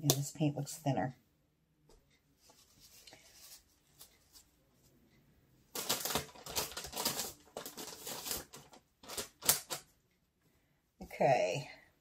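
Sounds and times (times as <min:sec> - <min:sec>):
paper towel crinkling: 0:05.7 - 0:09.8.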